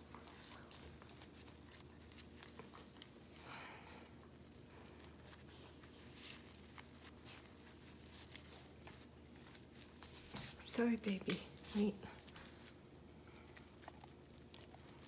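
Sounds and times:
paper tissue rustling: 4.4s - 12.9s.

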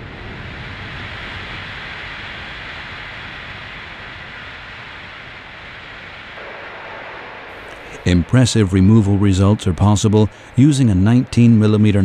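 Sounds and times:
abrasive blasting hiss: 0.6s - 11.9s
low rumble: 4.7s - 12.0s.

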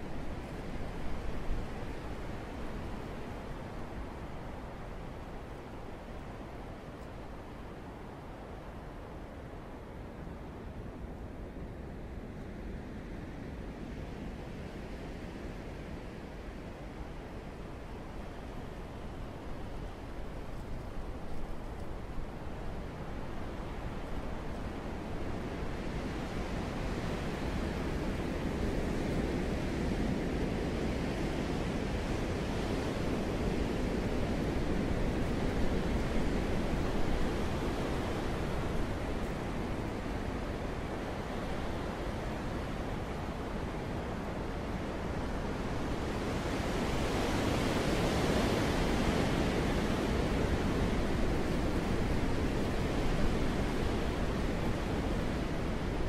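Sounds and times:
wind blowing: 17.8s - 56.0s.

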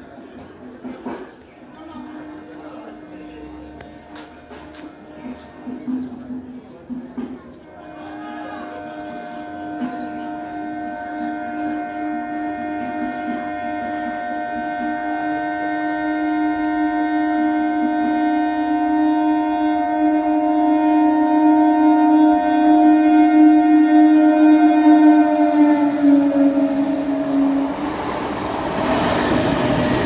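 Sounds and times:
train horn blast: 1.8s - 6.5s, 7.1s - 30.0s.

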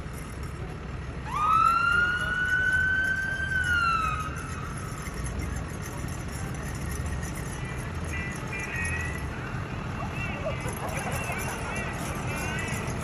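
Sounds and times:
low rumble of vehicles: 0.0s - 13.0s
siren wailing: 1.3s - 4.7s.

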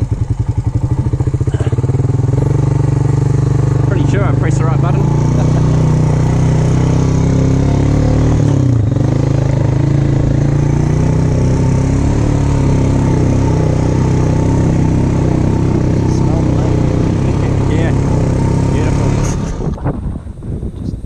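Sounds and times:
quad bike engine running: 0.0s - 20.8s.

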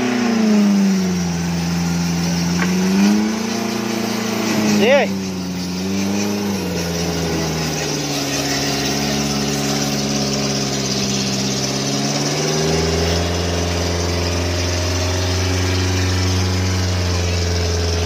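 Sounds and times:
off-road vehicle engine running: 0.0s - 18.0s.

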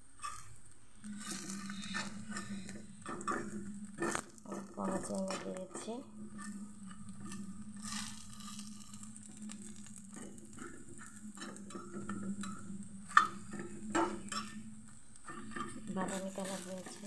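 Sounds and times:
fritters sizzling in frying pan: 0.0s - 17.0s
metal spatula scraping pan: 0.2s - 17.0s.

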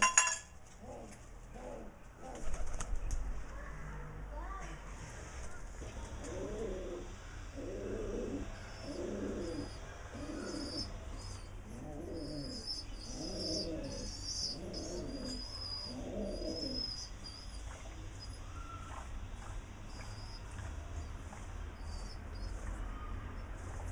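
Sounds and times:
pigeons cooing: 5.8s - 23.9s.

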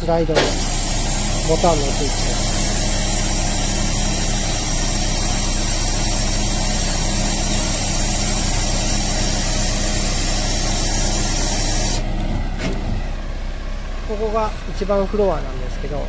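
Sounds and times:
diesel engine humming: 0.0s - 16.0s
loud hydraulic hiss: 0.3s - 12.1s.

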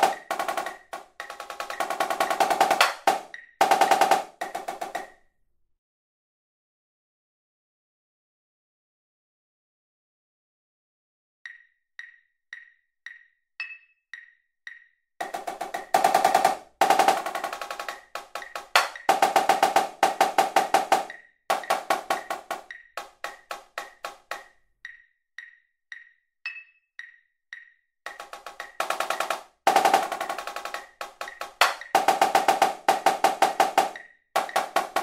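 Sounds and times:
marching snare drum: 0.0s - 5.1s, 15.2s - 24.4s, 28.1s - 35.0s
metronome clicking: 0.0s - 5.2s, 11.4s - 15.1s, 17.2s - 19.4s, 20.2s - 35.0s.

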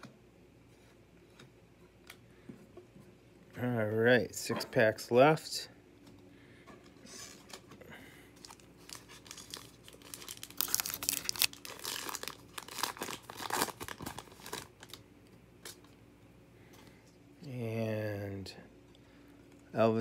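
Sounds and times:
card pack wrapper tearing and crinkling: 8.4s - 15.0s.

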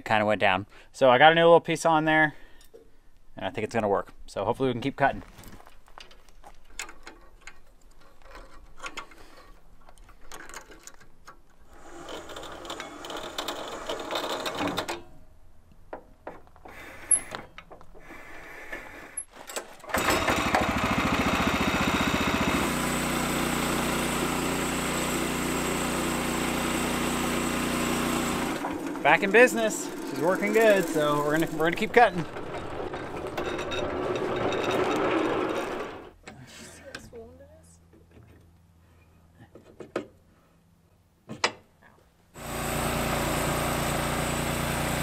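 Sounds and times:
gasoline engine running: 24.1s - 33.4s.

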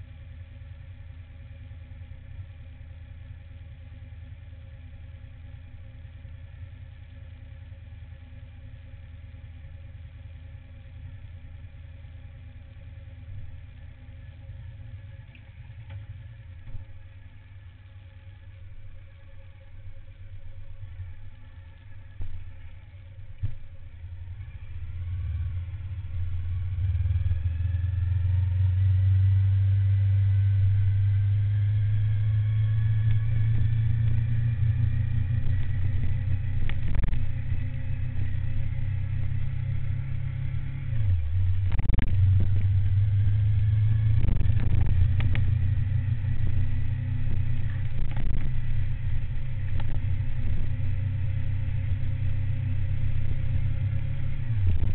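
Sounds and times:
motorcycle engine accelerating: 19.0s - 54.9s.

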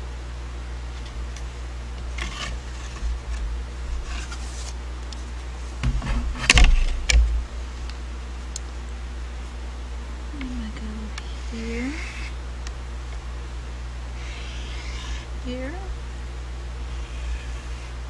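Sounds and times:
plywood scraping on cutting mat: 2.1s - 4.8s.

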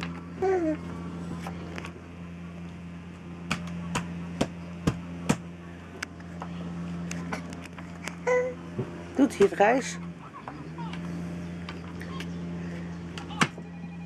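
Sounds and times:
steady low hum: 0.0s - 14.0s
baby cooing: 0.4s - 0.8s, 8.2s - 8.6s.

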